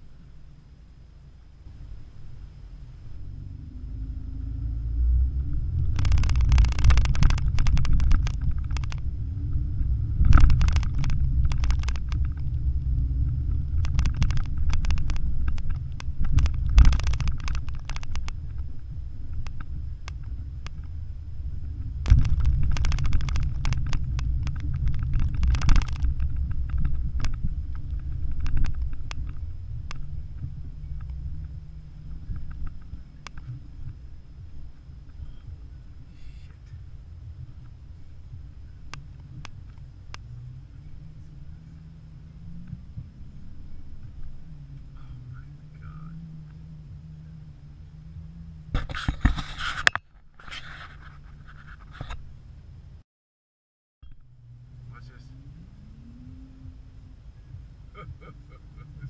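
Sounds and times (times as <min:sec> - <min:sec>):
car tyres rumbling on dirt track: 0:00.0 - 0:53.0, 0:54.0 - 0:59.0
car knocks and rattles over bumps: 0:03.9 - 0:47.0.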